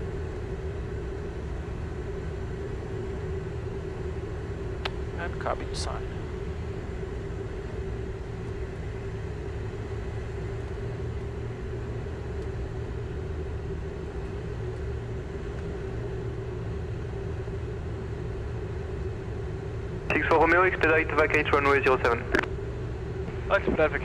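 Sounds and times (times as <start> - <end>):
airflow rush and jet engine noise: 0.0 - 24.0
steady hum: 0.0 - 24.0
low rumble: 20.1 - 24.0.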